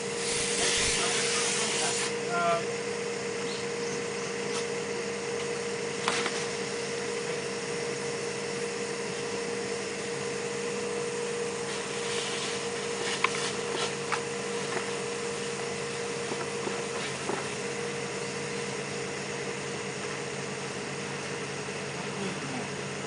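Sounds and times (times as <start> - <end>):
ventilation blower droning: 0.0 - 23.0.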